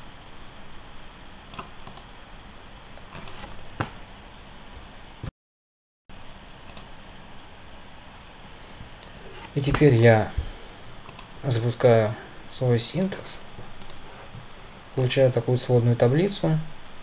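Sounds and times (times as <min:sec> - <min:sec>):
computer mouse clicks: 0:01.5 - 0:02.1, 0:03.0 - 0:03.6, 0:06.7 - 0:06.9, 0:11.0 - 0:11.3, 0:13.8 - 0:14.0
faint steady hiss: 0:06.1 - 0:17.0.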